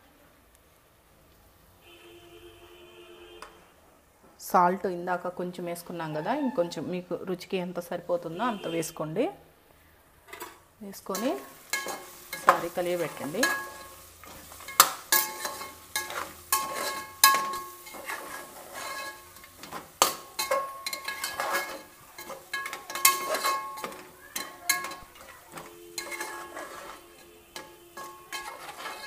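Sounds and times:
metal spoon stirring and scraping: 10.3s - 29.0s
spoon clinking against pot: 11.2s - 29.0s.

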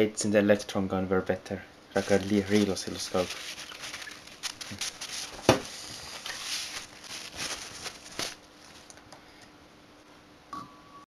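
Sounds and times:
parts scraping and rustling: 2.0s - 9.0s.

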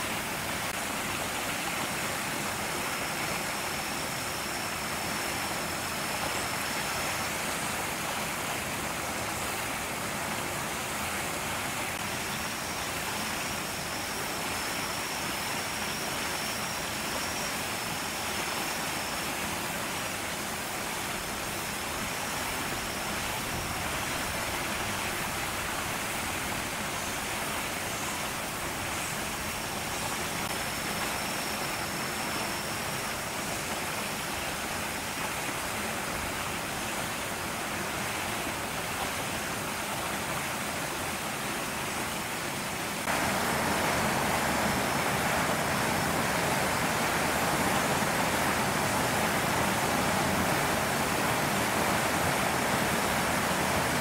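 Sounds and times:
steady rushing noise: 0.0s - 36.6s, 42.9s - 54.0s.

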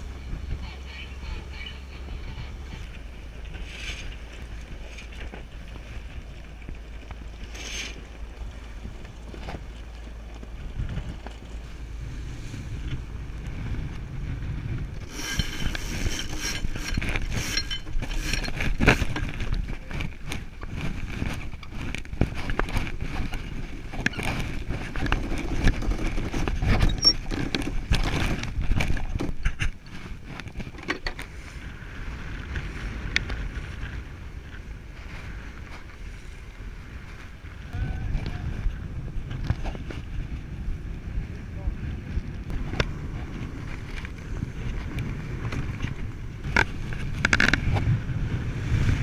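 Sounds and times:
wind buffeting microphone: 0.0s - 49.0s
rope and winch clicks and knocks: 15.0s - 31.3s, 43.6s - 47.9s.

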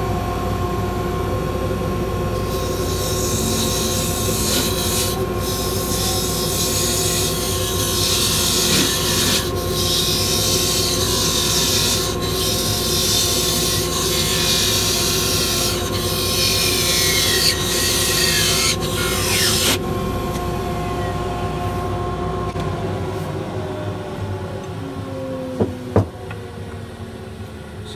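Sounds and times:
lathe motor humming: 0.0s - 24.6s
lathe tool cutting wood hiss: 2.4s - 19.8s.

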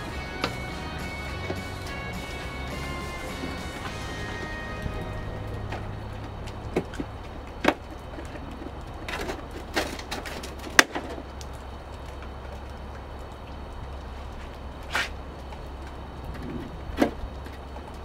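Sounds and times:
low rumble: 0.0s - 10.3s
plastic fasteners clicking and snapping: 6.7s - 12.8s.

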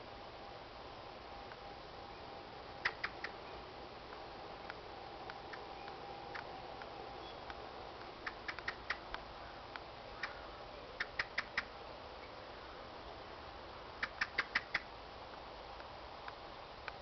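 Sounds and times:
blackbird chink calls: 2.8s - 3.6s, 8.2s - 12.4s, 14.0s - 14.9s.

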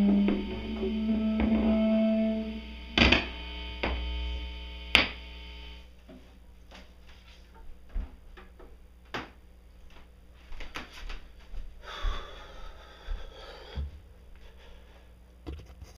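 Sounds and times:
low electrical hum: 0.0s - 15.9s
footsteps: 9.8s - 14.5s.

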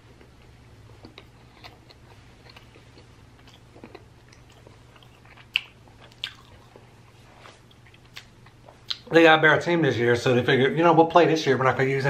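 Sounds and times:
chewing food: 0.1s - 9.1s.

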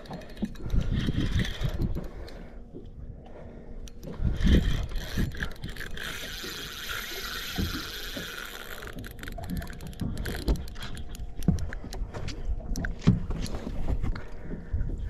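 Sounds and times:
water lapping against boat hull: 0.0s - 15.0s
wind buffeting microphone: 0.4s - 2.2s, 4.1s - 8.4s.

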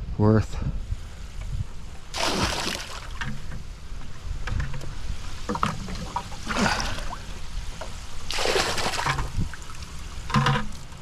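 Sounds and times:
water pouring from bucket into pond: 2.1s - 3.2s, 5.5s - 7.3s, 8.2s - 10.0s
small splashes and trickles: 2.1s - 3.4s, 5.2s - 11.0s.

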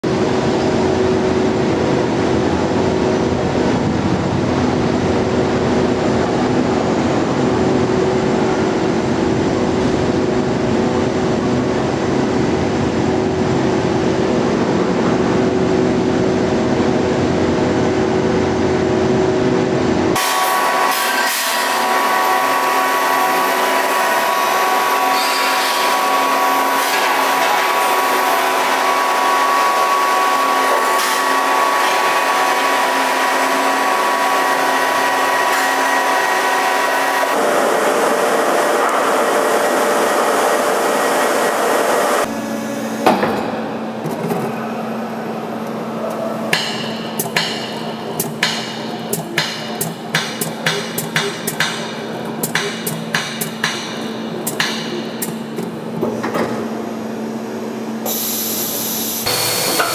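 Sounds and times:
machinery humming: 0.0s - 59.9s.

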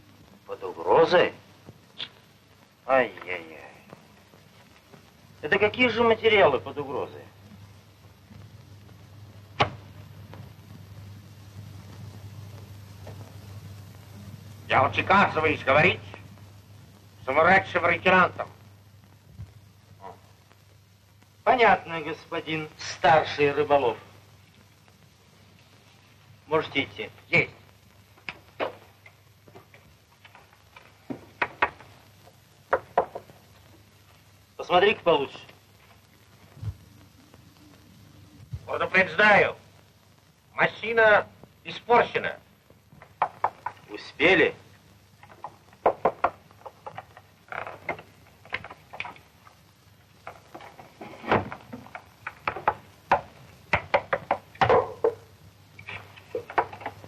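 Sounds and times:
sharp knocks on wood: 32.7s - 33.3s, 45.8s - 46.8s, 52.4s - 55.2s.

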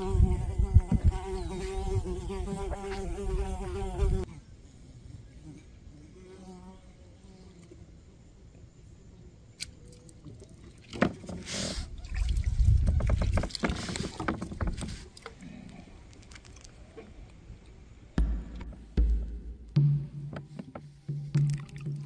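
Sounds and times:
knocking and rumbling on kayak: 12.6s - 15.0s, 18.2s - 22.0s
sharp clicks and knocks: 18.2s - 22.0s.

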